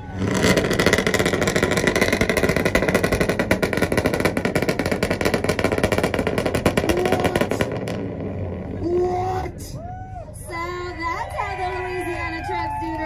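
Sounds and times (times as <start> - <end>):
truck engine revving: 0.0 - 9.8
exhaust popping and banging: 0.2 - 9.7.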